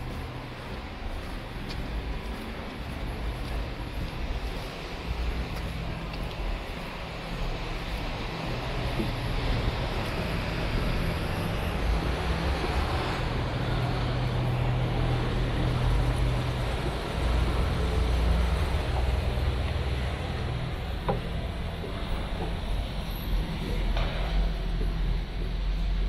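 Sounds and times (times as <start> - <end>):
city traffic noise: 0.0 - 26.0.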